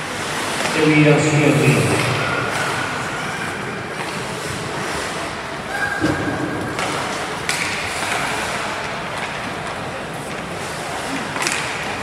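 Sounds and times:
skates scraping on ice: 0.0s - 5.8s, 6.6s - 12.0s
hockey sticks and puck knocking: 6.6s - 12.0s.

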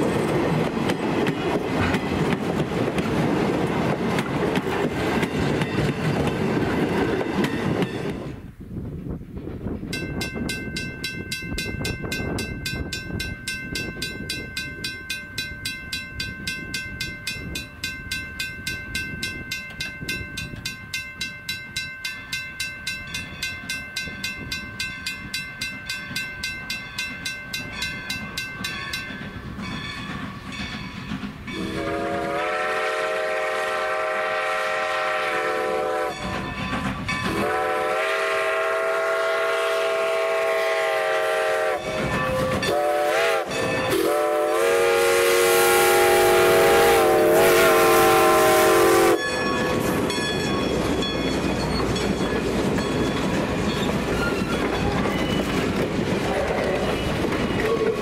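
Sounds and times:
passenger cars rumbling over rails: 0.0s - 10.5s, 27.1s - 58.0s
crossing bell ringing rapidly: 9.9s - 32.2s, 36.1s - 37.5s, 41.7s - 44.2s, 48.8s - 58.0s
chime steam whistle blasts: 31.5s - 36.6s, 37.2s - 50.5s.

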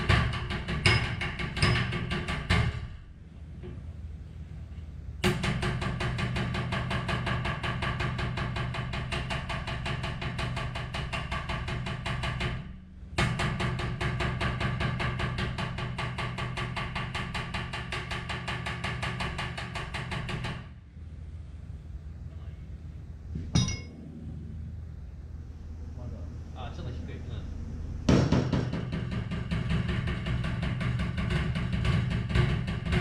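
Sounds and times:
metal tool tapping sheet metal: 0.0s - 2.9s.

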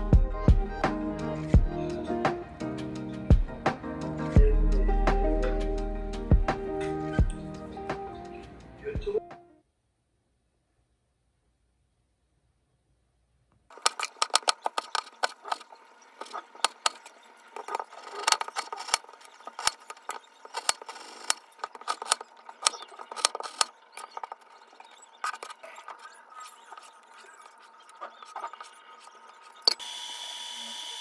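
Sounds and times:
small hard objects clicking: 13.7s - 26.0s.

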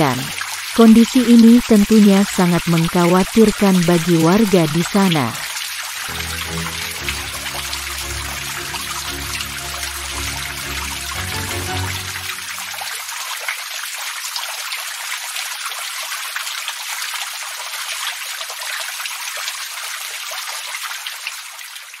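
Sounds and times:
background music: 6.0s - 13.1s.

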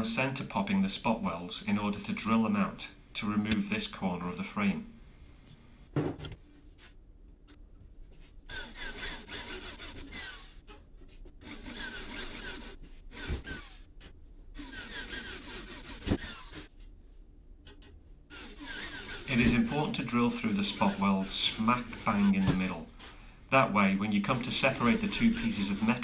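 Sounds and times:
electric drill cutting steel: 14.6s - 16.6s, 18.3s - 23.2s, 24.2s - 26.0s.

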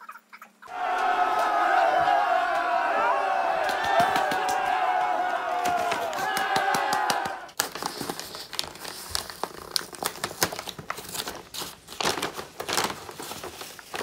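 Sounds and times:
paper bag crinkling and rustling: 7.6s - 14.0s.

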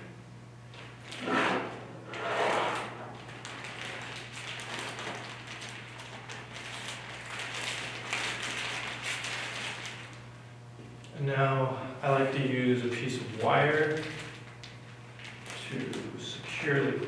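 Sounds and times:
plastic umbrella crinkling: 3.1s - 10.3s, 13.4s - 17.0s.

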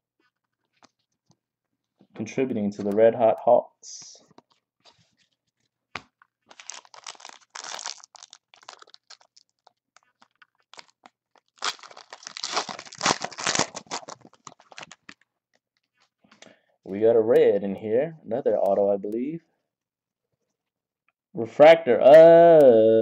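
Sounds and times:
foil wrappers crinkling and tearing: 6.4s - 15.2s.

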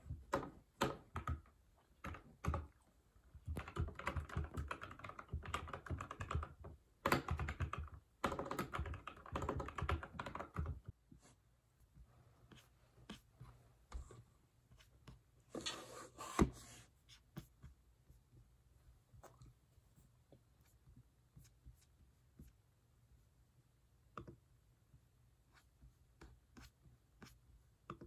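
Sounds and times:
computer keyboard typing: 0.3s - 2.8s, 3.4s - 10.9s.

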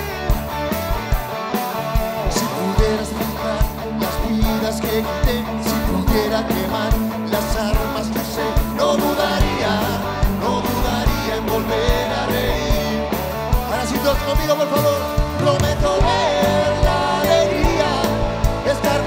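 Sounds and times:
rock band playing: 0.0s - 19.0s
steady drum beat: 0.0s - 19.0s.

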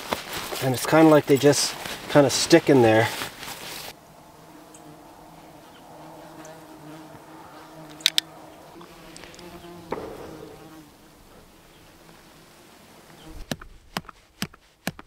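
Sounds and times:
horseflies buzzing: 3.9s - 13.6s
soft knock: 9.9s - 11.0s.

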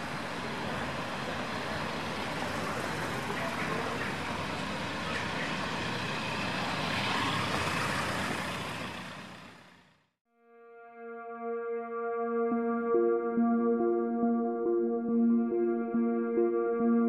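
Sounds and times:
road traffic noise: 0.0s - 10.2s.

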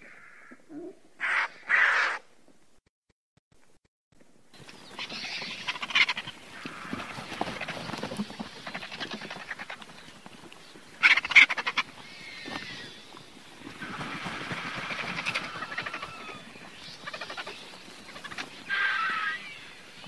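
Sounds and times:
vulture rattling croaks: 1.2s - 2.2s, 4.7s - 10.2s, 10.9s - 20.0s.

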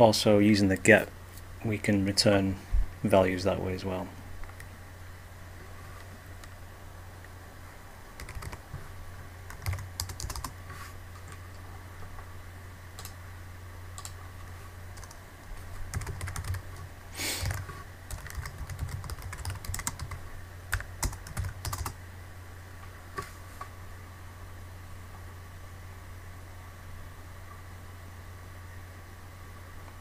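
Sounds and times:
steady low hum: 0.0s - 30.0s
computer keyboard typing: 8.2s - 8.8s, 9.5s - 10.6s, 13.0s - 13.2s, 15.0s - 15.2s, 15.9s - 16.8s, 17.4s - 22.0s.

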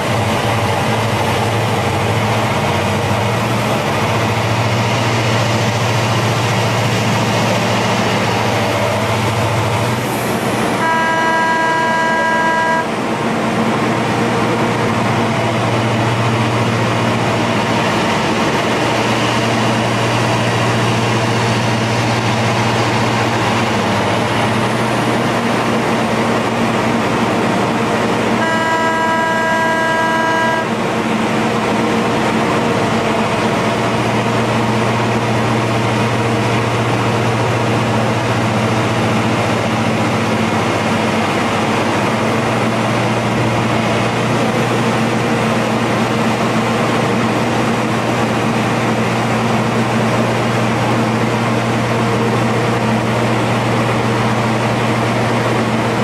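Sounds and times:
excavator running with low hum: 0.0s - 56.0s
horn held tone: 10.8s - 13.0s, 28.4s - 30.8s.

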